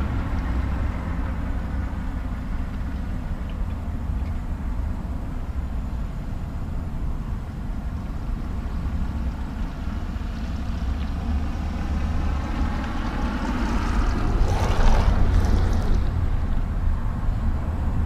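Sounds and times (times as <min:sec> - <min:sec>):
street traffic: 0:00.0 - 0:18.0
wind rumbling on microphone: 0:00.0 - 0:18.0
vehicle passing: 0:08.7 - 0:18.0.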